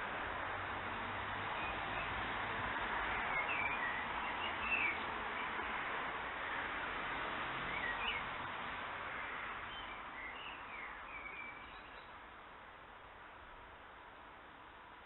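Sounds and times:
songbirds chirping and singing: 0:09.7 - 0:12.2.

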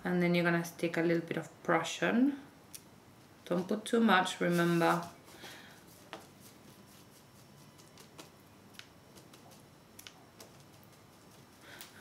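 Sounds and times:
paintbrush scraping on palette: 0:04.4 - 0:08.2.

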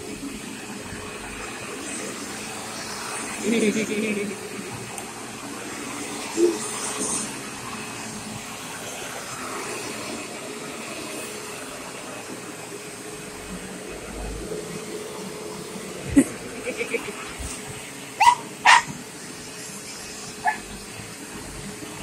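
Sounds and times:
vacuum cleaner running: 0:00.0 - 0:22.0
dog barking: 0:18.2 - 0:19.0, 0:20.4 - 0:20.6
dog yipping: 0:18.2 - 0:19.0, 0:20.4 - 0:20.6.

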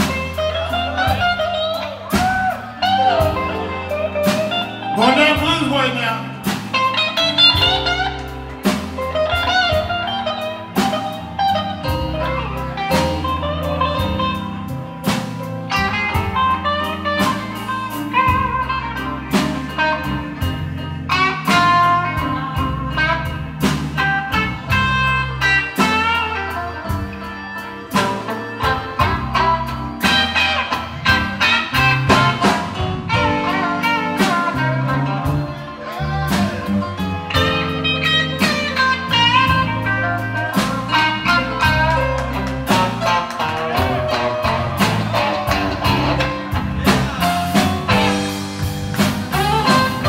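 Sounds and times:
bass line: 0:00.0 - 0:50.0
drum kit beat: 0:00.0 - 0:50.0
electric guitar lines: 0:00.0 - 0:50.0.

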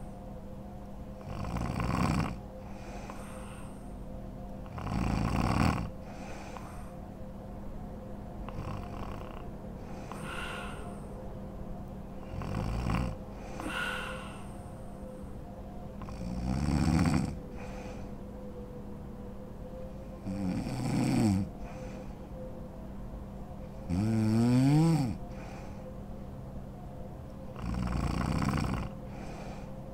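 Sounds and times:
woman snoring: 0:01.2 - 0:03.9, 0:04.6 - 0:07.0, 0:08.5 - 0:11.1, 0:12.2 - 0:14.8, 0:16.0 - 0:18.1, 0:20.2 - 0:22.0, 0:23.8 - 0:25.8, 0:27.5 - 0:29.7
breathy exhales: 0:02.6 - 0:04.0, 0:06.0 - 0:07.0, 0:08.5 - 0:11.2, 0:13.3 - 0:15.0, 0:17.5 - 0:18.2, 0:21.6 - 0:22.4, 0:25.1 - 0:26.0, 0:29.1 - 0:29.9.

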